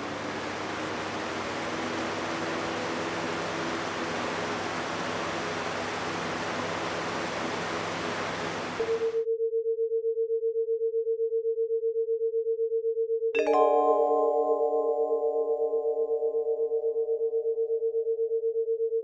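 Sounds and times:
box fan running: 0.0s - 9.2s
pulsing electronic tone: 0.0s - 9.2s.

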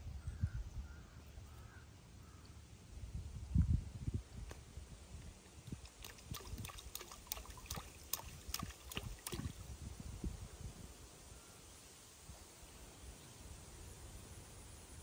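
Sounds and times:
water drips and splashes: 5.6s - 9.7s.

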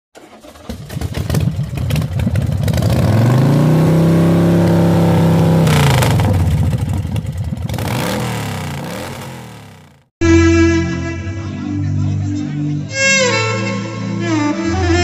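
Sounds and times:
motorcycle engine revving: 0.2s - 10.1s.

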